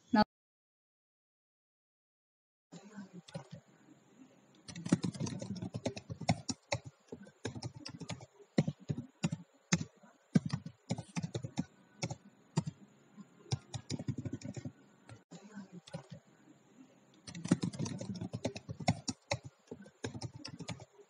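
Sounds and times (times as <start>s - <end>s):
computer keyboard typing: 4.6s - 12.8s, 13.5s - 15.2s, 17.2s - 20.9s.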